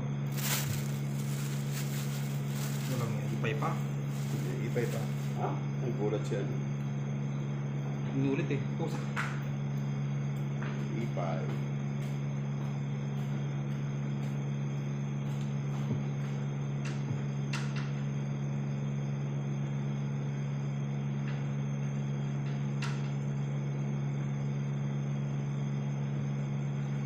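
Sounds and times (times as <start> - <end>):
low machine hum: 0.0 - 11.4.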